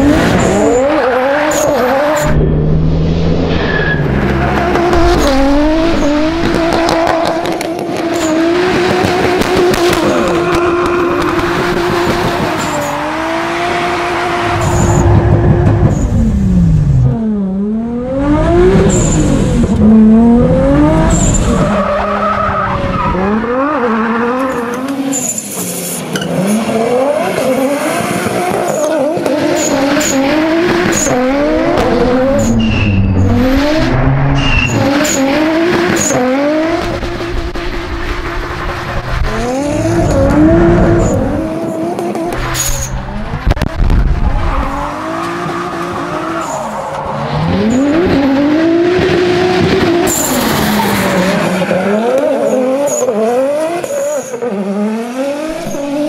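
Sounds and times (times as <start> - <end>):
car engine revving hard: 0.0 - 21.6, 26.3 - 46.4.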